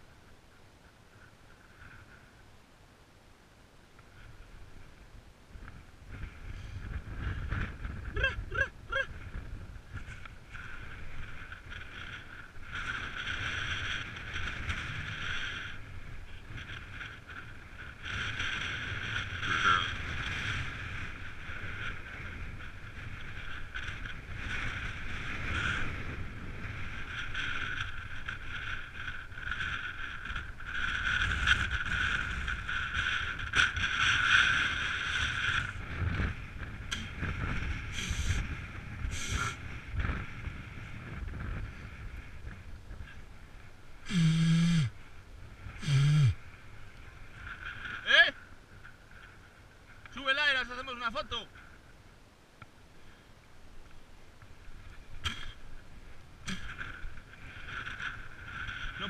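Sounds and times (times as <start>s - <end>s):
wind buffeting microphone: 4.1s - 50.1s
electric bike motor whining: 44.1s - 45.0s, 45.8s - 46.4s.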